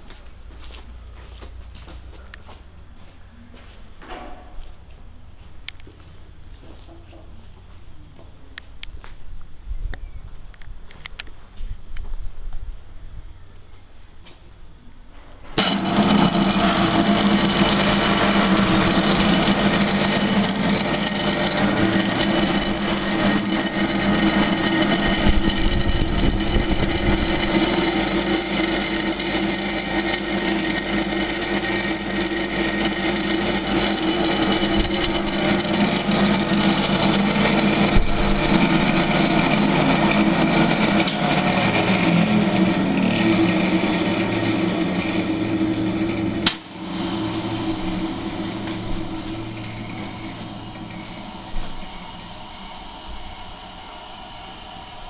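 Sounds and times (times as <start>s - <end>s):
mixer motor humming with whine: 15.6s - 55.0s.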